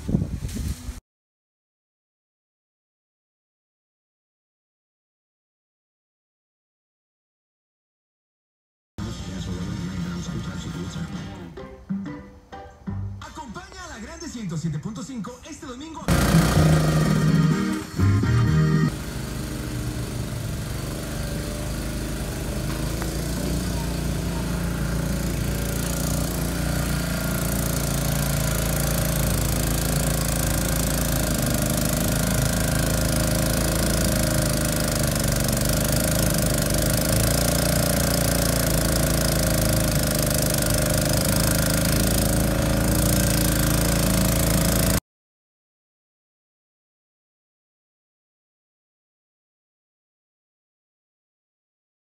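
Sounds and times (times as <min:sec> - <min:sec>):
small gasoline engine under load: 0:16.1 - 0:45.0.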